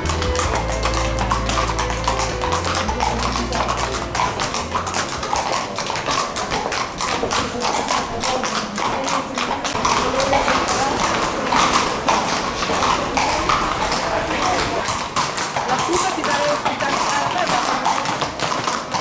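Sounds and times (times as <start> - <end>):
background music: 0.0 - 6.4
horse hooves clip-clopping on stone: 0.0 - 19.0.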